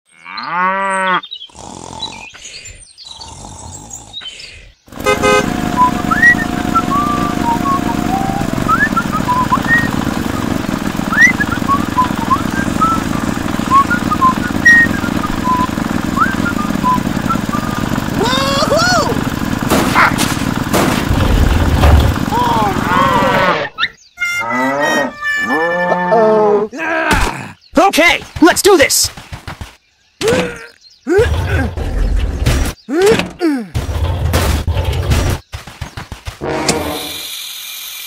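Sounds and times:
cow mooing: 0.1 - 1.2, 24.4 - 26.7
birds chirping: 0.1 - 37.3
tractor engine running: 4.9 - 23.4.

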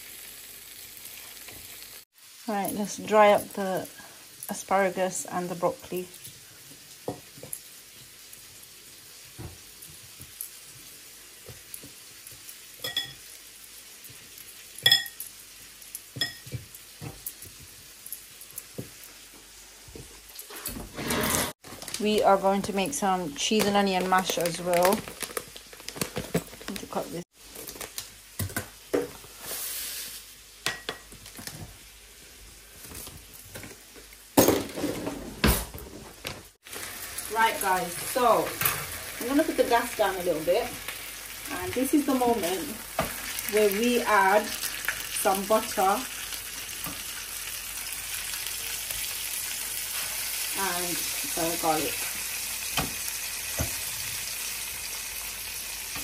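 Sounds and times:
steak sizzling in a pan: 0.0 - 20.5, 27.4 - 30.7, 36.6 - 56.0
plastic pouch crinkling: 23.6 - 27.0.

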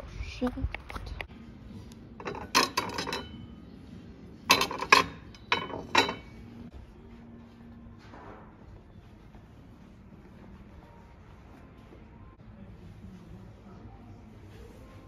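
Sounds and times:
porcelain plates clinking: 2.2 - 3.6, 4.5 - 6.5.

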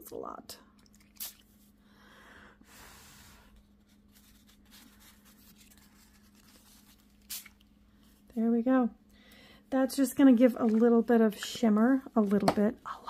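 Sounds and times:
paper rustling on tabletop: 3.8 - 7.6.

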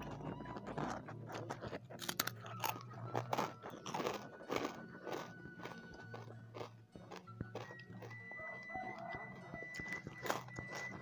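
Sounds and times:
crunching crisp cracker: 0.0 - 11.0.

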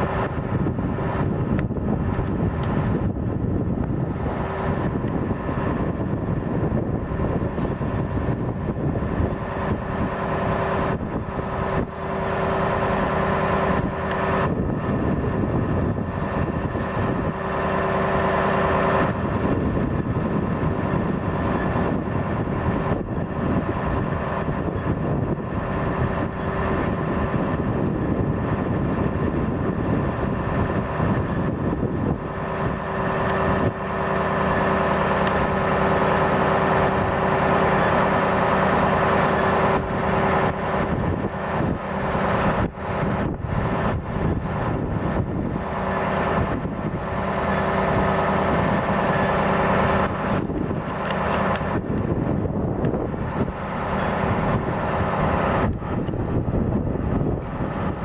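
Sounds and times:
diesel truck engine running: 0.0 - 58.0
hydraulic hum: 0.0 - 58.0.

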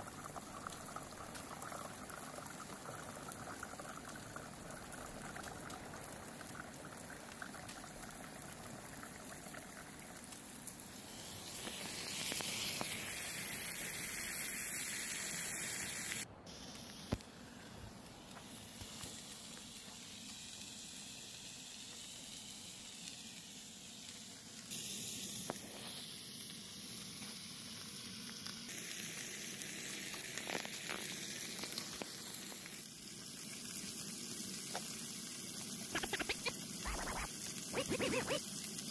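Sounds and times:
steaks sizzling in frying pan: 24.7 - 36.3.

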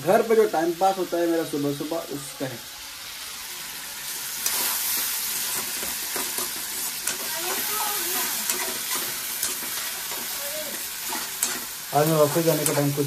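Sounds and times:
vegetables sizzling in a pan: 0.0 - 13.0
metal spatula scraping pan: 8.4 - 10.4.

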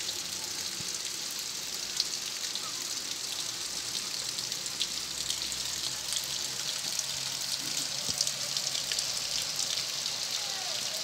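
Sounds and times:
steady rain falling: 0.0 - 11.0.

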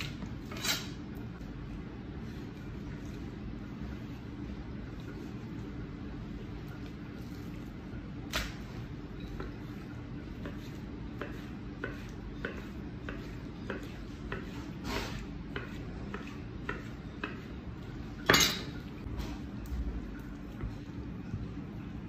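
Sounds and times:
knife chopping on cutting board: 10.3 - 17.6.

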